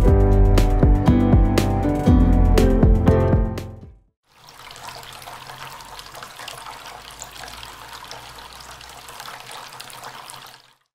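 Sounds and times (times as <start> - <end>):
fountain water trickling: 4.2 - 10.9.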